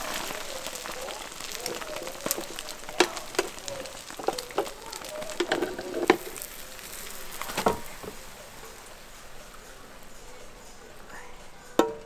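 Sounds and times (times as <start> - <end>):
pan knocking: 0.0 - 10.6, 11.6 - 12.0
omelette sizzling in pan: 0.0 - 12.0
spatula tapping and scraping pan: 0.1 - 8.6, 11.7 - 12.0.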